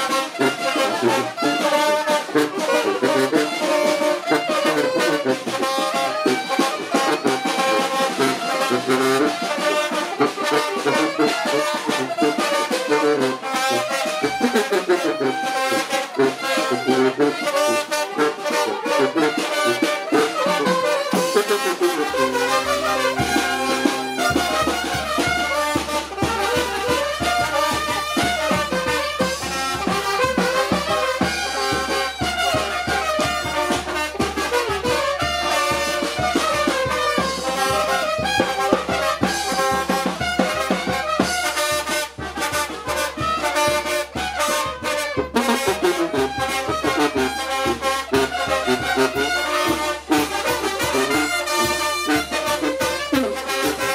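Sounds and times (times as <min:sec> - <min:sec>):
brass band playing dance tune: 0:00.0 - 0:53.9.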